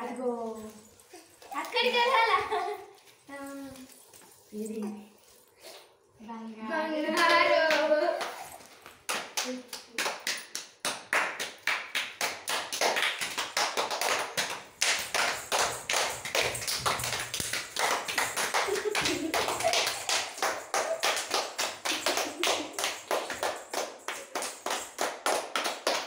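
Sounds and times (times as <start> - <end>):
people clapping in rhythm: 7.1 - 26.0.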